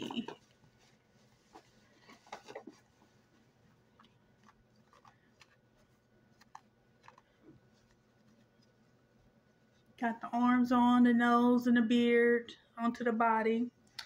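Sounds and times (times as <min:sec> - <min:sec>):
small clicks and rustles: 0:00.0 - 0:10.0.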